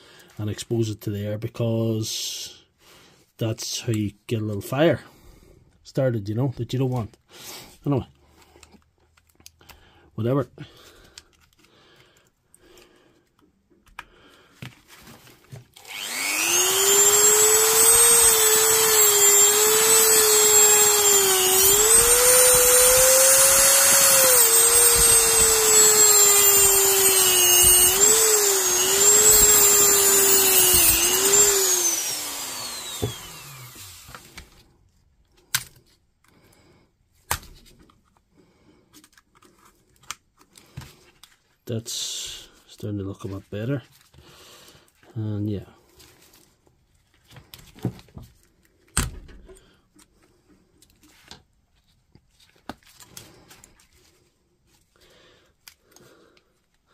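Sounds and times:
rotary tool cutting metal: 15.8 - 34.2.

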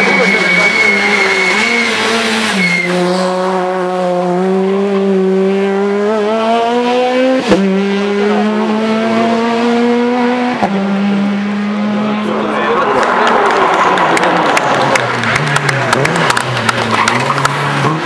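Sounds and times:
tyre squeal: 0.0 - 3.4
car engine accelerating: 0.0 - 18.0.

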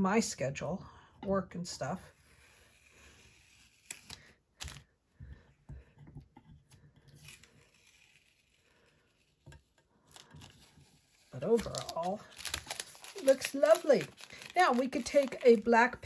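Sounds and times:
tape peeling off paper: 2.4 - 4.8, 7.1 - 9.4, 10.1 - 15.7.

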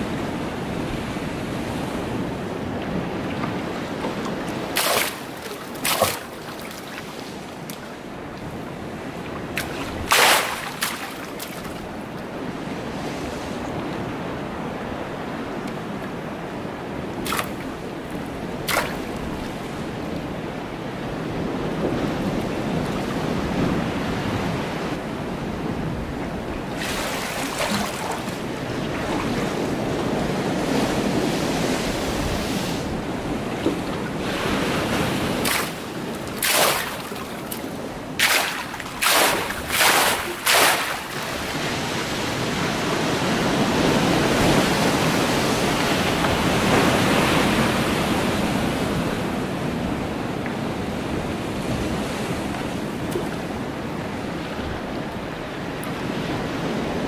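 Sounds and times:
pool water sloshing: 3.4 - 8.5, 9.2 - 12.0, 26.7 - 29.7, 33.6 - 41.9
sharp water splashes: 4.5 - 7.9, 9.6 - 11.9, 17.2 - 17.8, 18.6 - 19.4, 26.8 - 28.5, 35.2 - 41.7.

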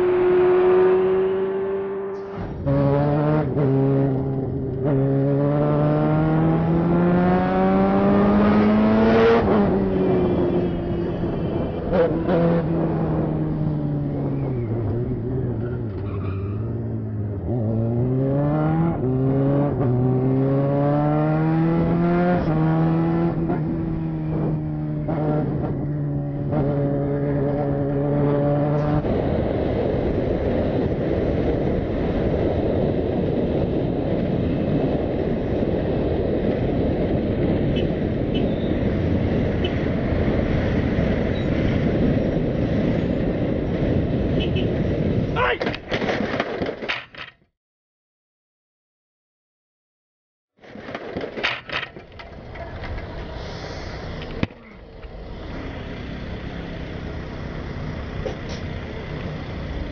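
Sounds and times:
motorcycle engine accelerating: 0.0 - 16.0, 16.7 - 45.2
wind and road noise: 0.0 - 47.5, 50.5 - 59.9.

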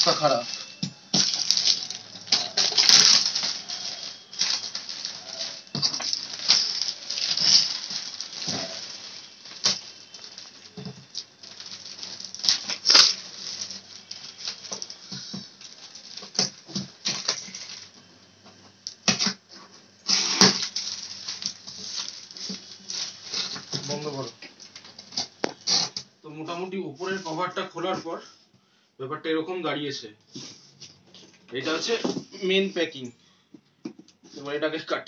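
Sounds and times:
packaging tearing: 0.0 - 18.0, 20.1 - 26.0
plastic packaging crinkling: 0.0 - 18.1, 18.7 - 26.0.

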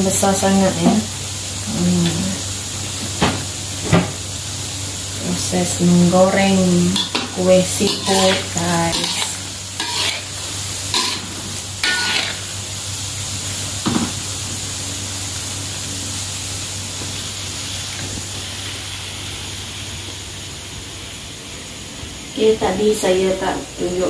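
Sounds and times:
dough deep-frying in oil: 0.0 - 24.0
metal spatula scraping wok: 6.9 - 12.6.

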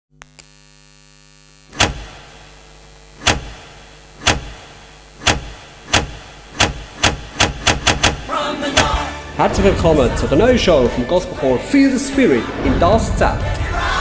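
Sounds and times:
electrical hum: 0.1 - 10.6.

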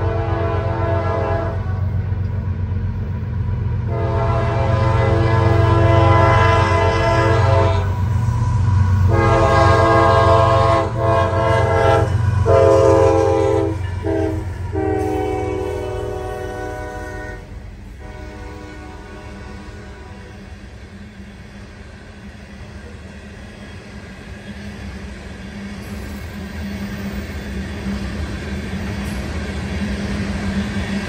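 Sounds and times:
train air horn blasts: 0.0 - 1.9, 3.8 - 20.6
train rumbling past: 0.0 - 31.0.

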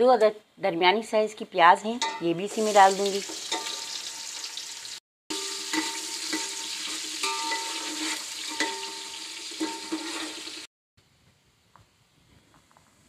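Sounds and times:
onions sizzling in pot: 2.3 - 10.7
metal spoon scraping pot: 5.3 - 10.6.

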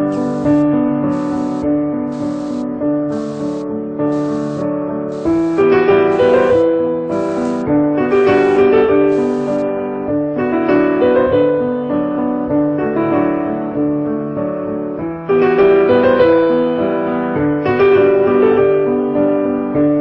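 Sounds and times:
piano music: 0.0 - 9.7.

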